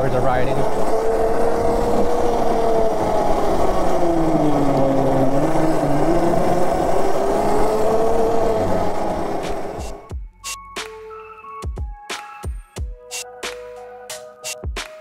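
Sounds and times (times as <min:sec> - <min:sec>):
electric motor whine: 0:00.0 - 0:10.1
road noise: 0:00.0 - 0:10.1.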